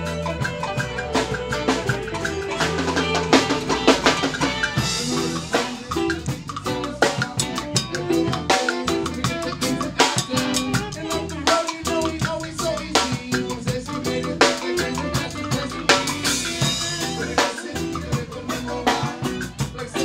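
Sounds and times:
bass guitar: 0.0 - 20.0
busy drum kit: 0.0 - 20.0
live rock band playing: 0.0 - 20.0.

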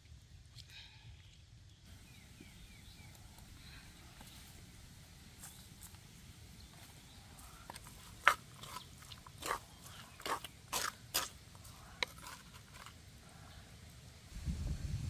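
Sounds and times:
wooden spatula scraping a wok: 6.8 - 13.0.

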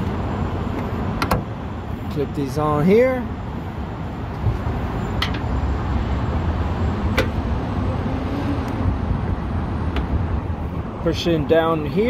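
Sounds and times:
steady low rumble: 8.6 - 12.0.

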